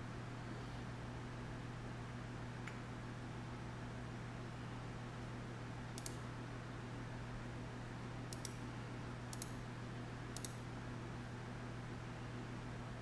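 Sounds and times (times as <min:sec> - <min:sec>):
low electrical hum: 0:00.0 - 0:13.0
computer mouse clicking: 0:06.0 - 0:06.2, 0:08.3 - 0:08.6, 0:09.3 - 0:09.6, 0:10.4 - 0:10.6.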